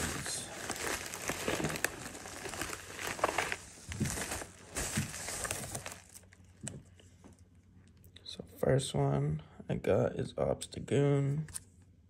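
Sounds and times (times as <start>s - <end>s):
packaging crinkling: 0.0s - 6.8s.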